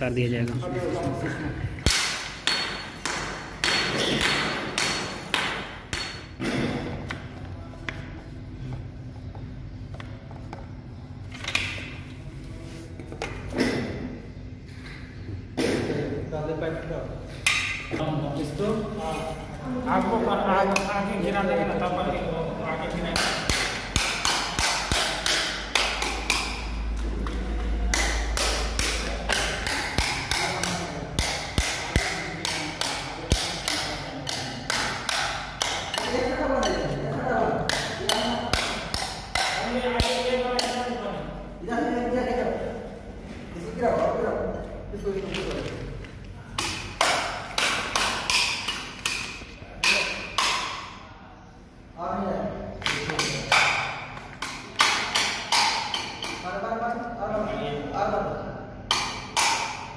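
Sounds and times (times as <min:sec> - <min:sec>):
sharp metallic taps on pipe: 0:23.1 - 0:26.9, 0:27.8 - 0:36.8, 0:37.7 - 0:40.8, 0:46.6 - 0:51.0, 0:52.8 - 0:56.4, 0:58.9 - 0:59.9.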